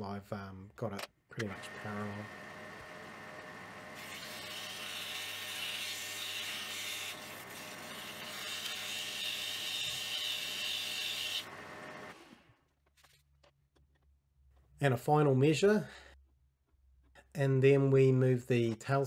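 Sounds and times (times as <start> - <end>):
lathe humming: 1.4 - 9.0.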